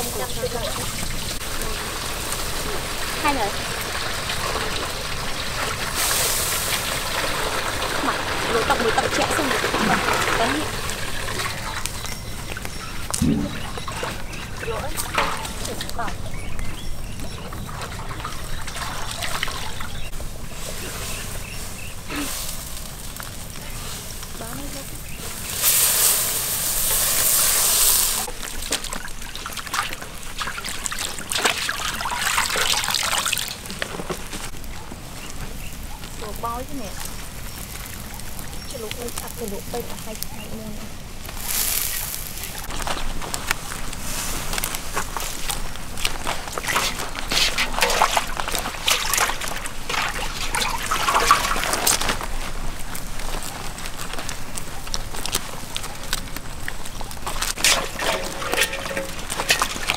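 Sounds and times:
water splashing and dripping: 0.0s - 20.2s, 24.2s - 40.2s, 44.5s - 59.9s
water rushing: 27.8s - 33.8s, 46.5s - 52.2s, 57.6s - 59.9s.

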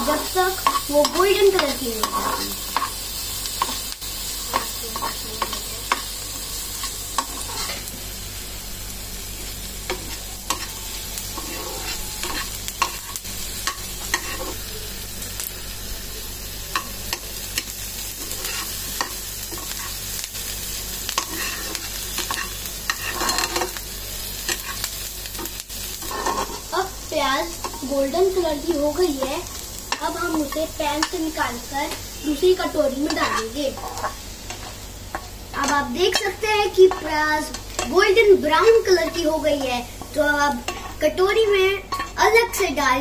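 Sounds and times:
onions sizzling in a pan: 0.0s - 43.0s
metal spatula scraping a pan: 7.2s - 7.8s, 9.9s - 14.6s, 21.2s - 23.8s, 25.9s - 26.7s.

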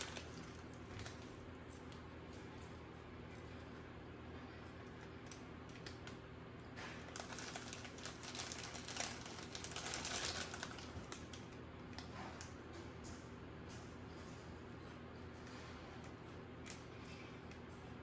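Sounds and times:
plastic chip bag crinkling: 0.0s - 2.8s, 7.0s - 12.1s.

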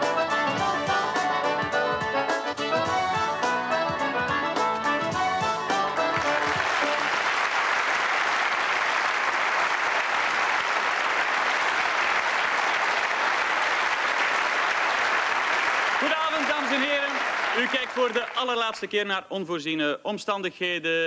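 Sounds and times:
opening tune music: 0.0s - 7.8s
audience applauding: 5.7s - 18.9s.

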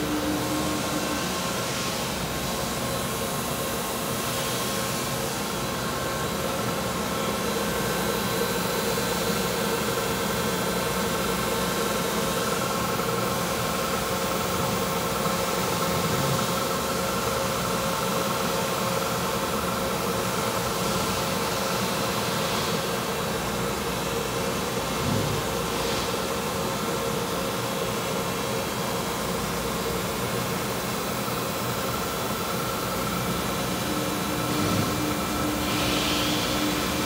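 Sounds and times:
boring mill humming: 0.0s - 19.0s, 28.8s - 37.0s.

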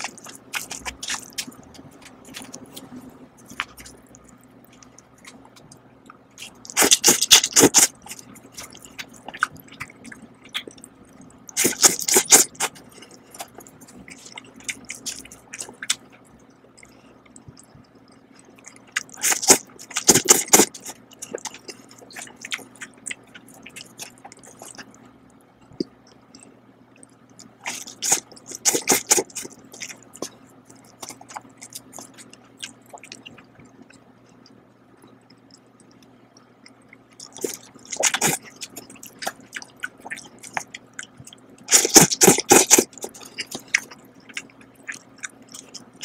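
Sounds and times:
quiet chewing: 0.0s - 46.0s
wet noodle slurps: 41.7s - 43.6s.

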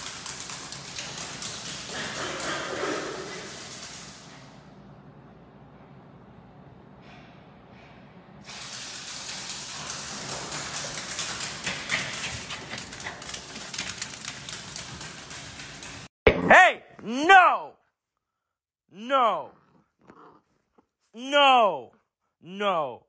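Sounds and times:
dog claws clicking on floor: 0.0s - 4.3s, 8.5s - 16.1s
hiss: 8.4s - 9.6s.

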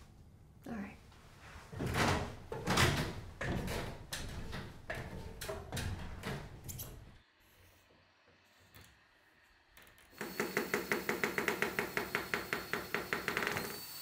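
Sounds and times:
climbing aluminium ladder clunks: 1.7s - 7.1s.

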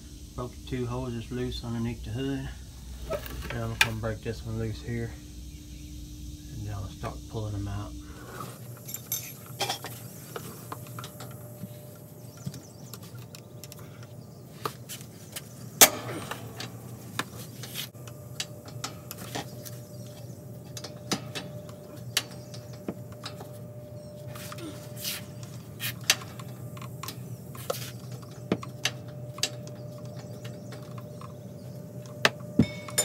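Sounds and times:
low hum: 0.0s - 33.0s
wrench clinking on fitting: 32.6s - 33.0s.

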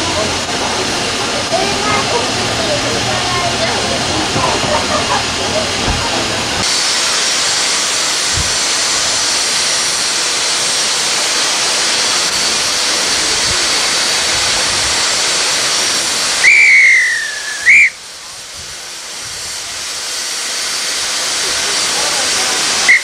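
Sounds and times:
steam hissing: 0.0s - 23.0s
steam whistle blast: 16.4s - 18.0s.

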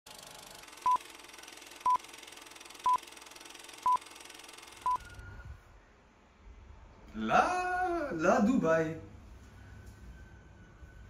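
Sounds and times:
short electronic beeps: 4.8s - 5.5s.

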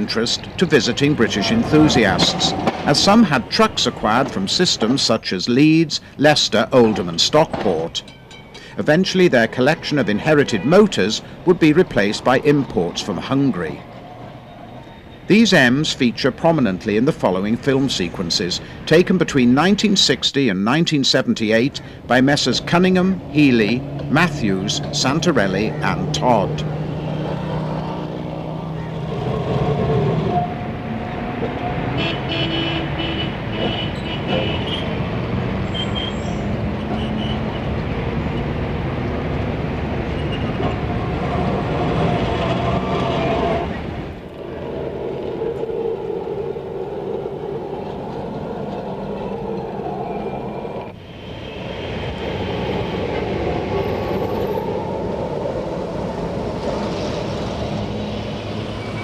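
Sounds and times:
horns tooting: 0.0s - 28.1s, 29.8s - 38.5s, 40.0s - 44.5s
city street traffic: 0.0s - 59.0s
trams running on rails: 0.0s - 59.0s.

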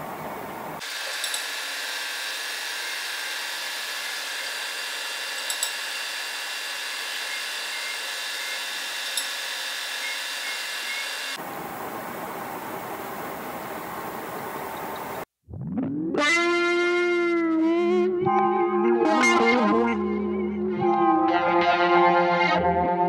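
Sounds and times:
lathe cutting hiss: 0.8s - 11.4s
lathe drilling: 0.8s - 11.4s
sharp clicks: 5.4s - 5.8s.

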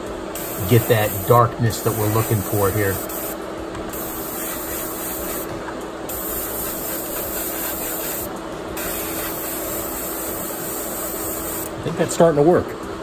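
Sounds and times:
airbrush spraying hiss: 0.4s - 11.7s.

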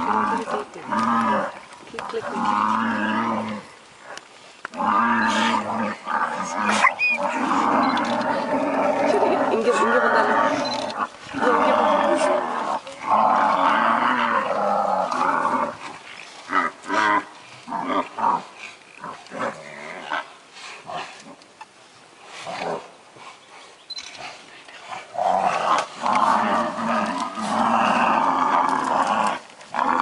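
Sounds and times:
loud drawn-out animal calls: 6.4s - 11.6s.

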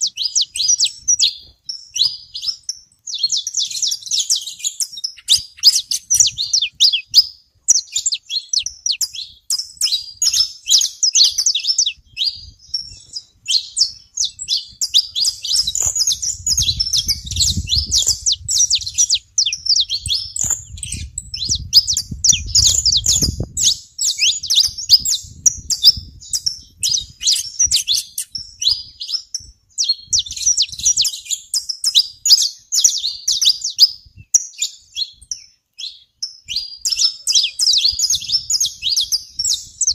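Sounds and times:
finches chirping: 0.0s - 39.9s.

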